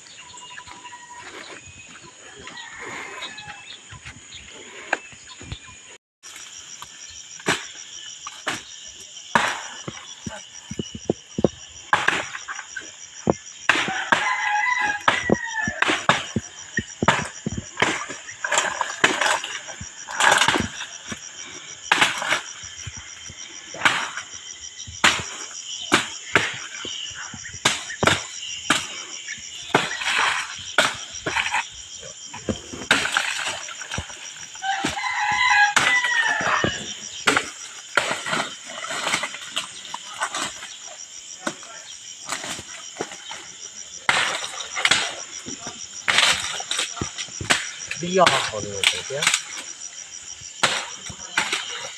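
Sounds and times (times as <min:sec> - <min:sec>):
rooster crowing: 0:02.2 - 0:03.8, 0:13.8 - 0:16.0, 0:34.6 - 0:37.0
machete chopping palm stems: 0:13.7 - 0:19.5, 0:44.0 - 0:45.2, 0:50.6 - 0:51.9.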